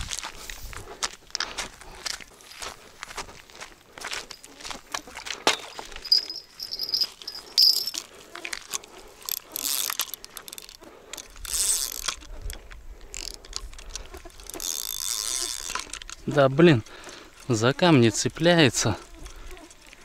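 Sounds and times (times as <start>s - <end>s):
fishing reel clicking and whirring: 6.0s - 17.5s.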